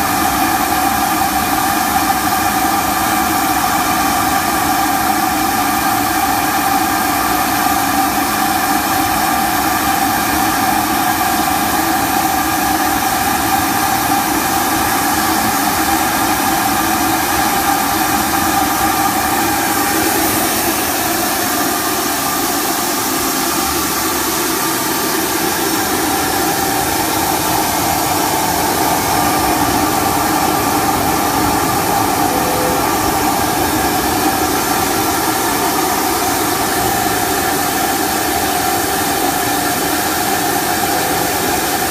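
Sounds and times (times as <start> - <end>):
machine whine: 25.8 - 41.9.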